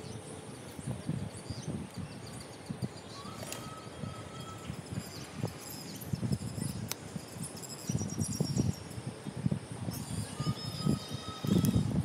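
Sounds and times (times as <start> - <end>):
bird chirps: 0.0 - 9.0, 9.9 - 11.9
whistle-like tone: 3.1 - 6.7, 9.9 - 11.9.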